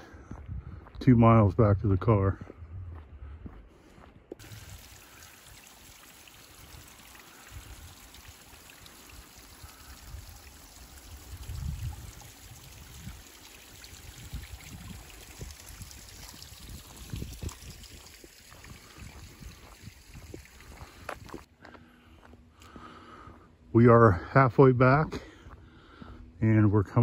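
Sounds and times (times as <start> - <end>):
water trickling off rock: 4.4 - 21.5.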